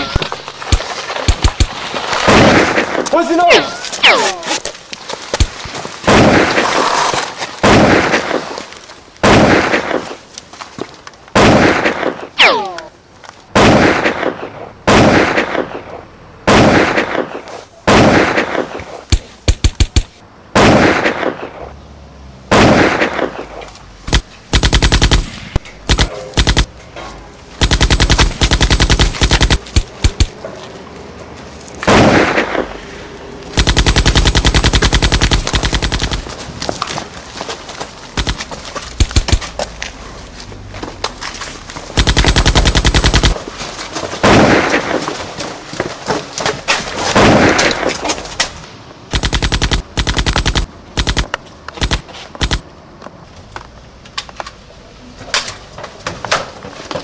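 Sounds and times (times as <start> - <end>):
echoing rifle shots: 22.5 - 26.8, 27.6 - 30.3, 33.6 - 36.3, 42.0 - 43.4, 49.1 - 52.6
automatic gunfire bursts: 24.1 - 26.7, 27.6 - 30.3, 33.6 - 36.3, 38.2 - 38.4, 39.0 - 39.4, 42.0 - 43.4, 49.1 - 52.6.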